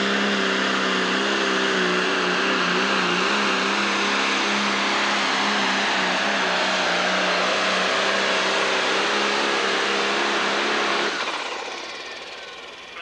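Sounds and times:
diesel tractor engine at full throttle: 0:00.0 - 0:13.0.

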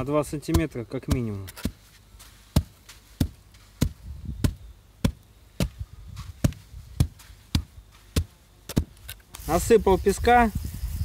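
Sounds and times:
wooden tamper thudding on wet sand: 0:00.4 - 0:01.8, 0:02.5 - 0:05.8, 0:06.4 - 0:09.2.

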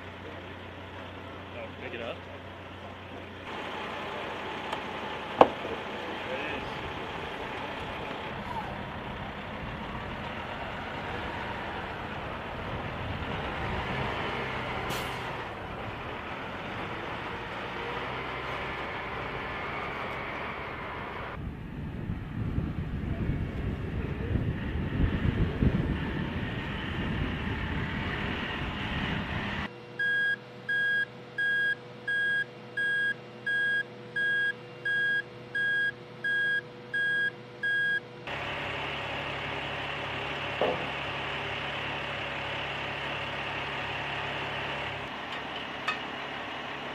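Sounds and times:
truck engine idling: 0:00.0 - 0:21.5, 0:23.0 - 0:46.9
truck backup alarm beeping: 0:30.0 - 0:38.1.

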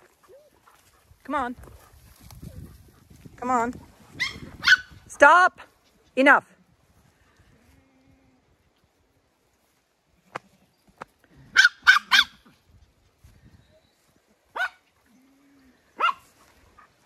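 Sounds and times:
small dogs barking: 0:04.2 - 0:05.0, 0:11.5 - 0:12.6, 0:14.5 - 0:14.8, 0:15.9 - 0:17.0.

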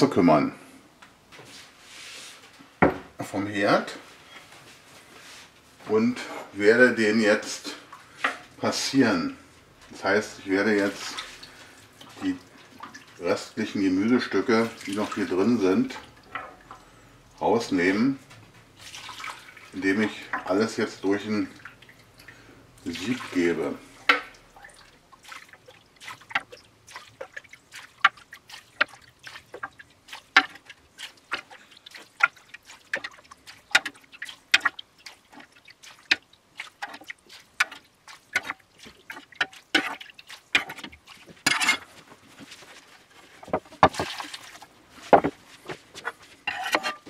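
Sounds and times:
liquid splashing into sieve: 0:10.7 - 0:17.4, 0:18.8 - 0:45.3
metal ladle clinking: 0:46.5 - 0:47.0.

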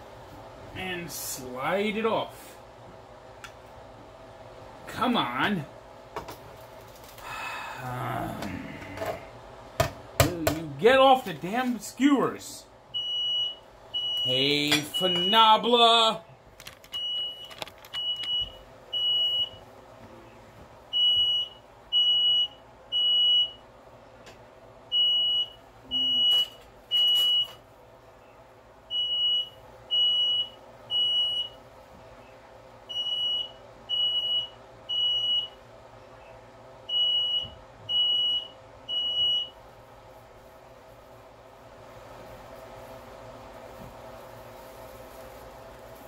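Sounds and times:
smoke alarm beeping: 0:12.9 - 0:15.7, 0:16.8 - 0:19.6, 0:20.9 - 0:23.6, 0:24.9 - 0:27.6, 0:28.9 - 0:31.6, 0:32.9 - 0:35.6, 0:36.9 - 0:39.6.

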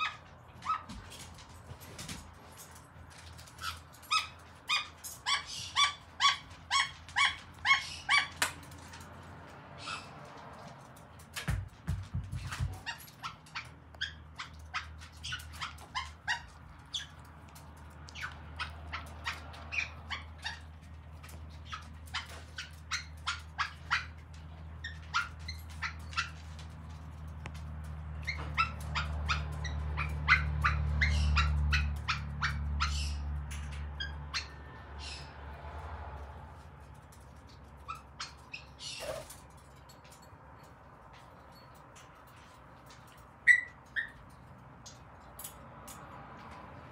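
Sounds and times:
parrot squawking: 0:03.6 - 0:08.6, 0:09.8 - 0:10.3, 0:12.5 - 0:17.2, 0:18.1 - 0:26.4, 0:28.2 - 0:33.4, 0:34.0 - 0:35.4, 0:43.4 - 0:44.2.

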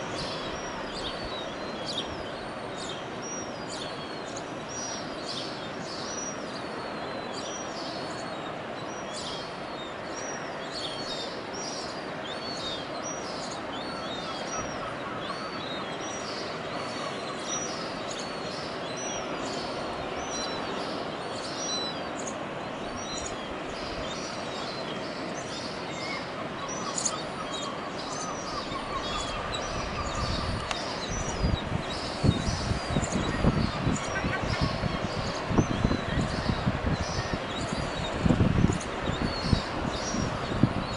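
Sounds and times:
gull chicks peeping: 0:26.7 - 0:40.4.

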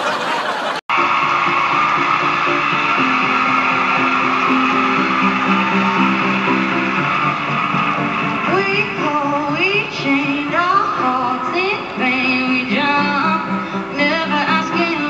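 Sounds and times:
instrumental backing music: 0:00.9 - 0:15.0
woman singing: 0:08.5 - 0:15.0.

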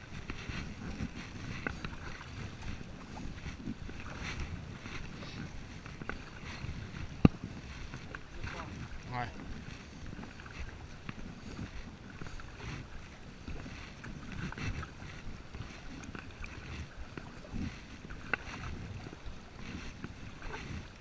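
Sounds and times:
paddle splashing in water: 0:00.0 - 0:21.0
wind rumble on microphone: 0:00.0 - 0:21.0.

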